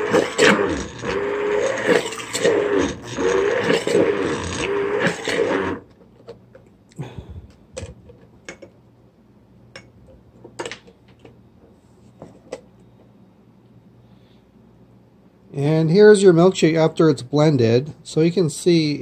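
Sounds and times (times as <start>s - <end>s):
stick blender motor whirring: 0.0s - 5.9s.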